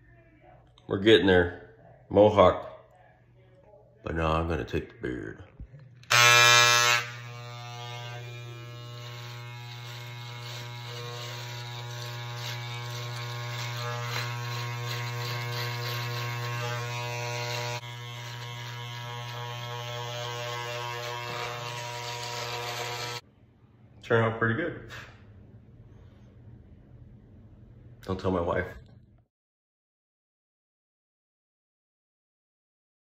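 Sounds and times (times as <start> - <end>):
electric hair clippers buzzing: 6.0 - 23.2.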